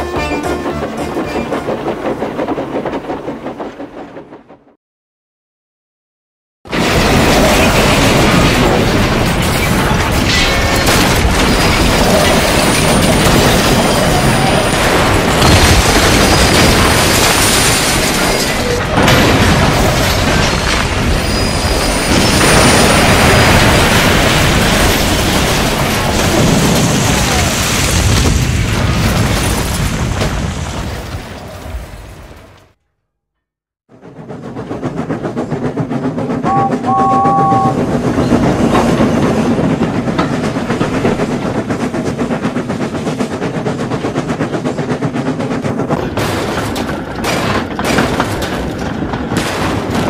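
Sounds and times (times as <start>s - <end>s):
loud rumbling crash: 6.7s - 32.6s
scattered knocks: 34.4s - 50.0s.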